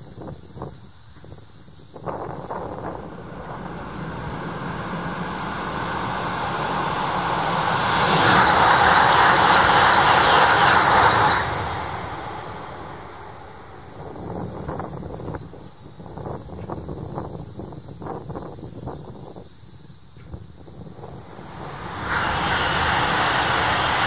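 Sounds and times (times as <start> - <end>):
high-speed train rushing past: 1.8 - 17.5, 20.7 - 24.0.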